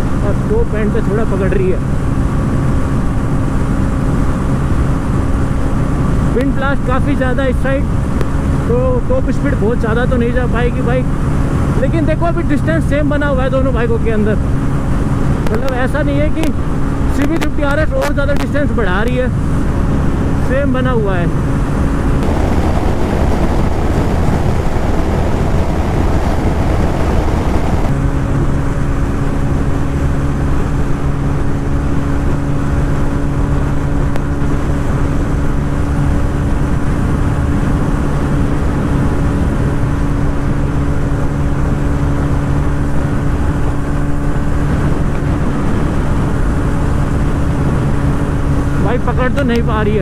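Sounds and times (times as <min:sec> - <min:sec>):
wind rush: 0:21.2 - 0:49.8
motorcycle engine droning: 0:22.0 - 0:28.6.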